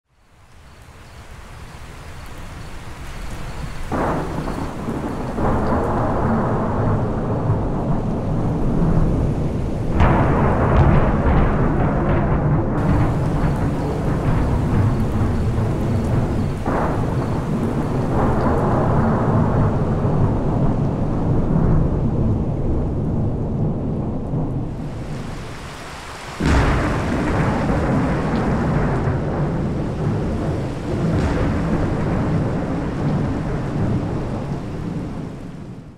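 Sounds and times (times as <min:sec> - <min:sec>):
rain: 0:00.0 - 0:35.9
thunder rumbling: 0:01.3 - 0:35.9
sharp cracks of close thunder: 0:03.3 - 0:35.9.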